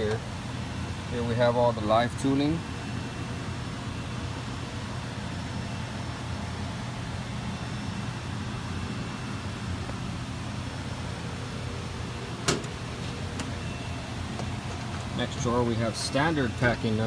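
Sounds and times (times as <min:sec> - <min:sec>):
machine shop hum: 0:00.0 - 0:17.0
metal drawer clacking shut: 0:12.4 - 0:12.8.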